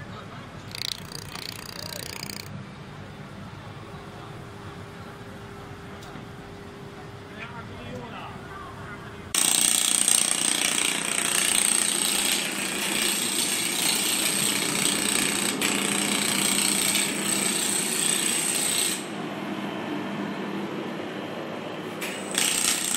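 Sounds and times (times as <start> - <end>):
laser pulses rattling buzz: 0.7 - 2.5.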